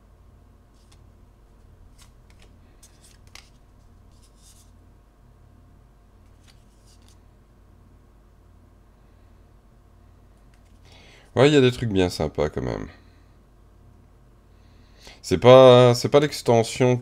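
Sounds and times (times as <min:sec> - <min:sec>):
low steady hum: 0:00.0 - 0:17.0
cards sliding against cards: 0:00.7 - 0:04.8, 0:06.2 - 0:07.2, 0:10.4 - 0:11.0.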